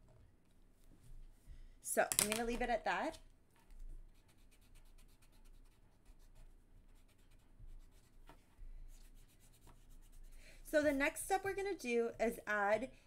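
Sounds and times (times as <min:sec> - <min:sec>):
pen scratching on paper: 0:04.1 - 0:08.2.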